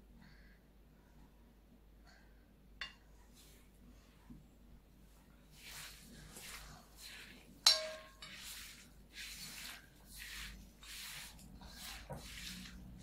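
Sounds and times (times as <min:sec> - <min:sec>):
clink against glass bowl: 0:07.6 - 0:08.4.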